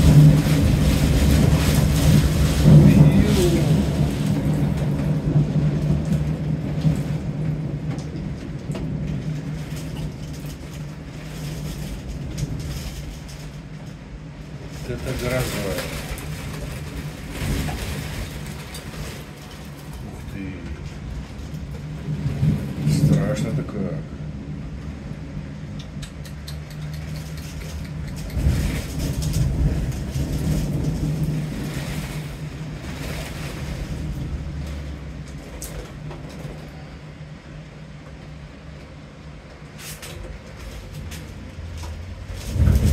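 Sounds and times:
rolling thunder rumble: 0:00.0 - 0:26.0, 0:27.1 - 0:42.9
sharp ticks: 0:25.8 - 0:28.5.

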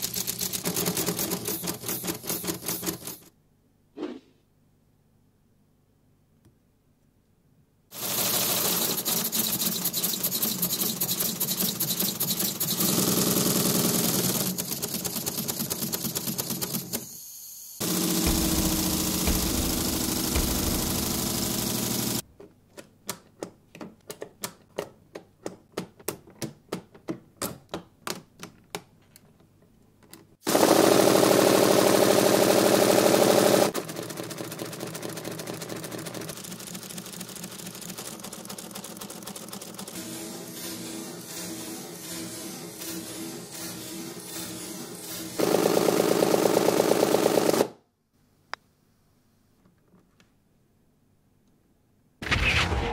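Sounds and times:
pneumatic engine pistons clattering: 0:17.8 - 0:22.2.

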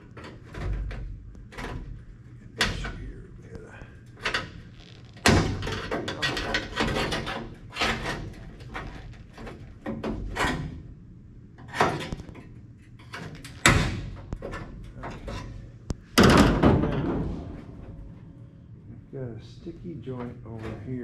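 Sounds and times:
sheet steel rattling and creaking: 0:00.0 - 0:11.0, 0:11.6 - 0:18.5, 0:19.8 - 0:21.0
metal knocks and clank: 0:05.2 - 0:10.8, 0:13.0 - 0:18.2.

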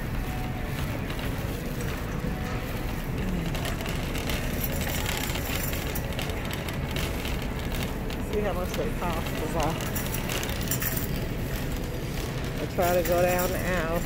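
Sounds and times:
shopping cart rattling: 0:00.0 - 0:14.0.

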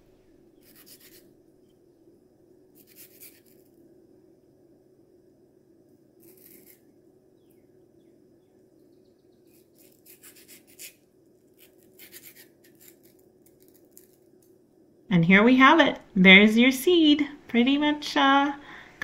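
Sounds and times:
low room hum: 0:00.0 - 0:19.0
knife scraping mango pit: 0:00.6 - 0:01.3, 0:02.8 - 0:03.7, 0:06.2 - 0:06.9, 0:09.4 - 0:14.2.

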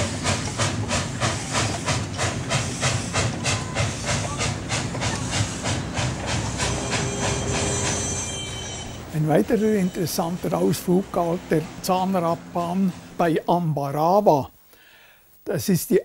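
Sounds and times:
steam hiss: 0:00.0 - 0:13.4
steam locomotive exhaust chuffs: 0:00.0 - 0:13.4.

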